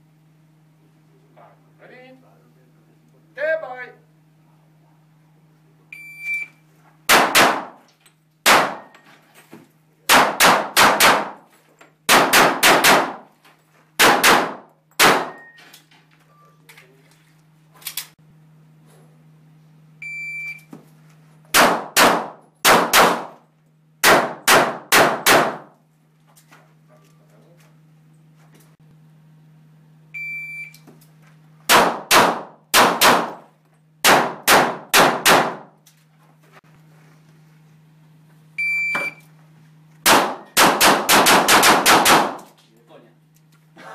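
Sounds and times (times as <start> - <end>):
steady low hum: 0.0 - 43.9
pistol shots: 7.1 - 7.8, 8.4 - 8.9, 10.1 - 11.4, 12.1 - 13.2, 14.0 - 15.4, 21.5 - 23.4, 24.0 - 25.7, 31.7 - 33.4, 34.0 - 35.7, 40.0 - 42.5
electronic shot timer beeps: 38.6 - 39.2.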